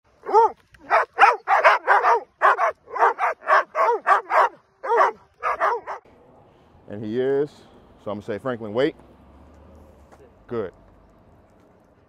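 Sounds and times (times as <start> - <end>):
dog barking rapidly: 0.2 - 6.0.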